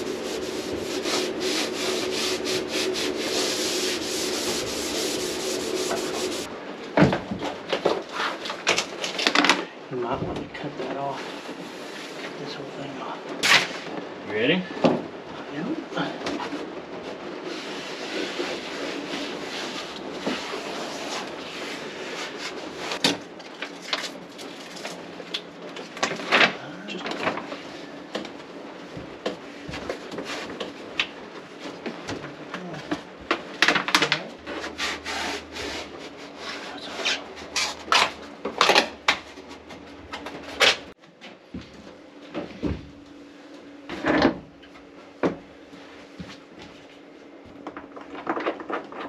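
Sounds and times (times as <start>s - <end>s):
backing paper rustling and peeling: 0.0s - 6.5s, 32.6s - 41.0s, 47.8s - 49.0s.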